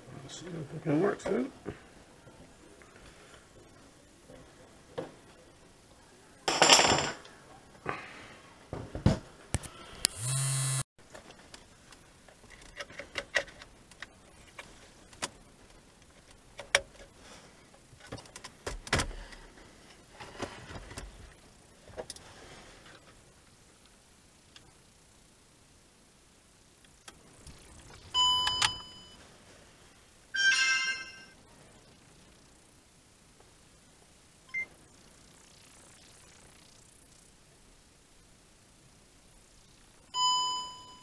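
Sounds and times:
steady hum: 0:09.3 - 0:30.4, 0:31.2 - 0:41.0.

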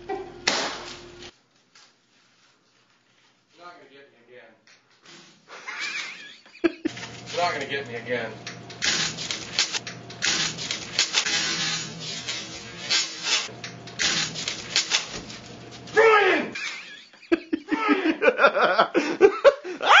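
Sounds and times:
people laughing hard: 0:05.6 - 0:07.0, 0:17.1 - 0:20.0
plastic tape crinkling and tearing: 0:06.9 - 0:07.8, 0:08.7 - 0:16.0.

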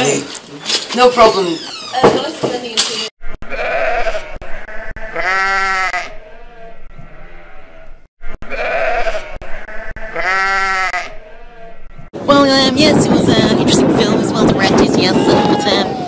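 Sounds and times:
sheep bleating: 0:03.4 - 0:11.8.

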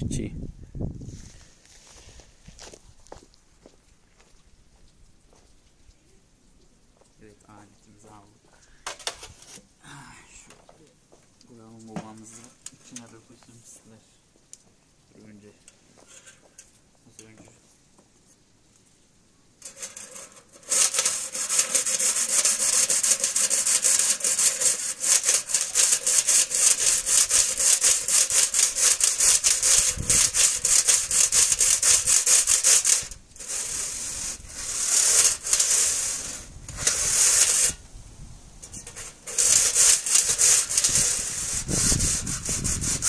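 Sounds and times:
scraping soot from stovepipe: 0:15.6 - 0:17.6, 0:19.6 - 0:37.8, 0:38.6 - 0:43.0.

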